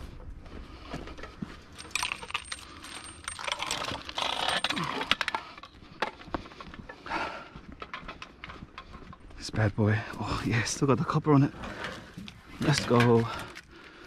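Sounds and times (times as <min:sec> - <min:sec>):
metal clinking and rattling: 0:01.7 - 0:06.9.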